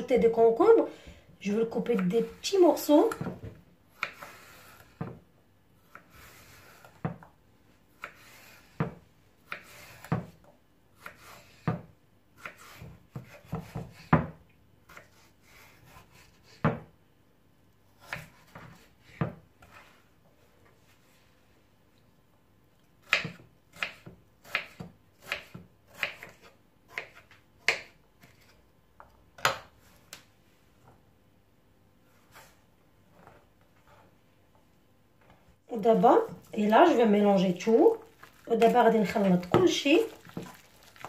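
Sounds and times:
knife scraping cucumber: 0:03.9 - 0:05.0, 0:09.5 - 0:10.2.

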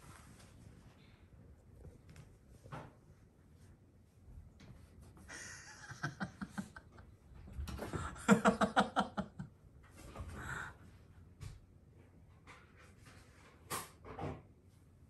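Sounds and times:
person laughing: 0:05.3 - 0:07.0, 0:07.9 - 0:09.5.

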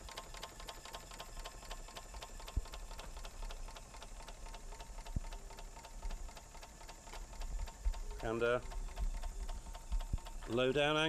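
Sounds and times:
model engine ticking: 0:00.0 - 0:11.0.

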